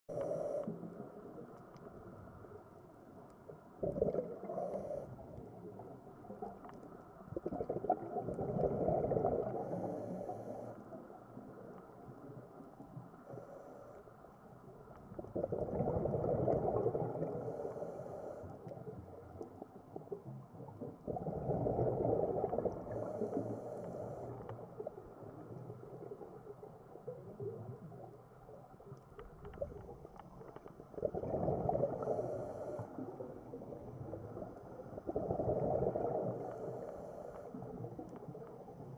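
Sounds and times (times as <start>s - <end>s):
faint regulator hissing: 0.1s - 0.7s, 17.4s - 18.5s
diver exhaling bubbles underwater: 3.8s - 4.9s, 7.3s - 10.2s, 15.1s - 17.6s, 20.7s - 23.4s, 31.0s - 36.6s.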